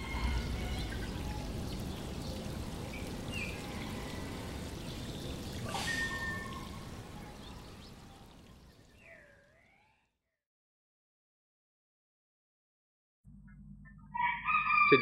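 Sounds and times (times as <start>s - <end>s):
water trickling: 0.0s - 9.7s.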